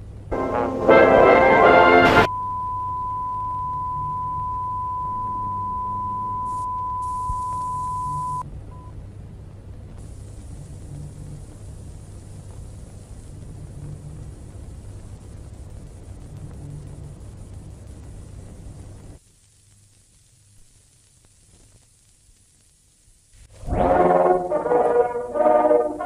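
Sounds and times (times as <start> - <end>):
low rumbling drone with hiss: 0.0 - 20.6, 21.4 - 26.0.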